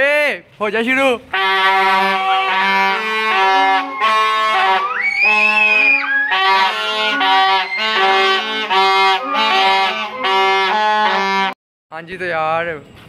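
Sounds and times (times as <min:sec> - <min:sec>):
toy trumpets honking: 0:01.3 - 0:11.6.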